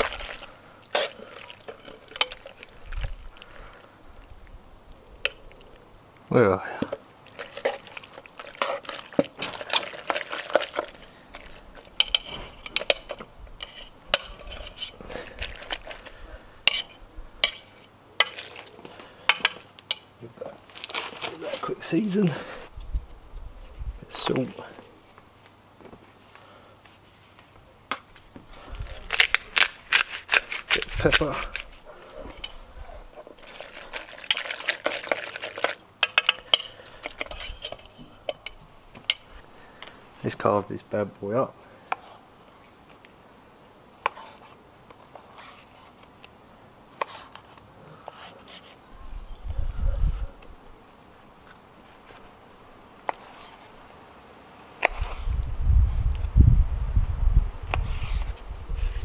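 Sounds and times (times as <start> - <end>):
metal utensil scraping a pot: 0.0 - 2.7, 7.4 - 18.6, 33.2 - 39.3.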